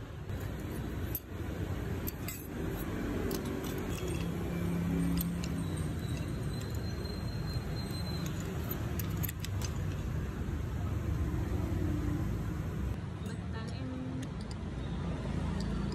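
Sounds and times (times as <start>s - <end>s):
street traffic rumble: 0.0s - 15.9s
metal spoon clinking on shells: 0.3s - 10.2s.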